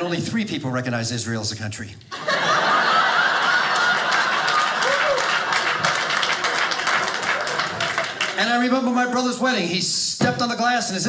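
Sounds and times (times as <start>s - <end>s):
audience clapping: 2.8s - 8.9s.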